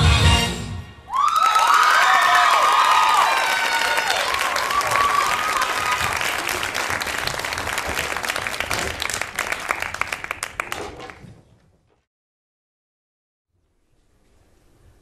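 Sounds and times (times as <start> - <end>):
audience applauding: 1.1 - 11.3.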